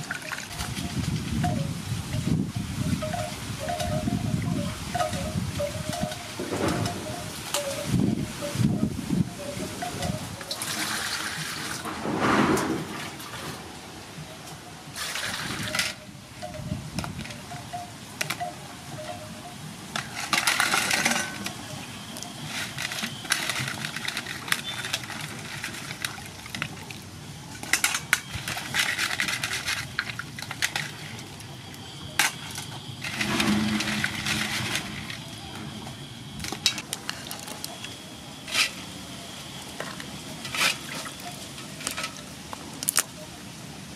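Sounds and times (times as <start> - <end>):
crab shells clicking: 42.8 - 43.1.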